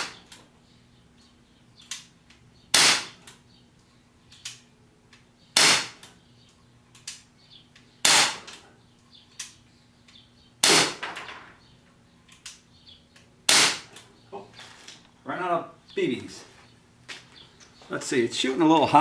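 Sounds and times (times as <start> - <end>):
bb pistol shots popping: 2.7 - 3.2, 5.6 - 6.0, 8.0 - 8.5, 10.6 - 11.2, 13.5 - 13.9.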